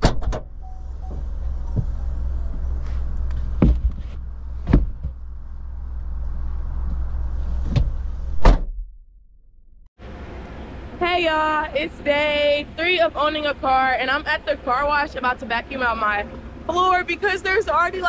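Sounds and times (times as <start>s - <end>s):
steady low rumble: 0.0s - 18.0s
items thumping into car cargo area: 2.9s - 5.2s.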